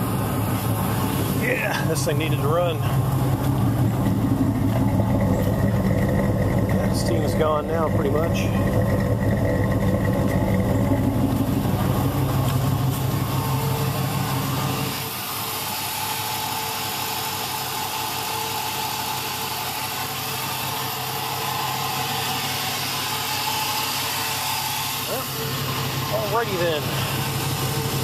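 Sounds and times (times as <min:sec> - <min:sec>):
deep exhaust note: 0:00.0 - 0:17.8
engine idling: 0:00.0 - 0:28.0.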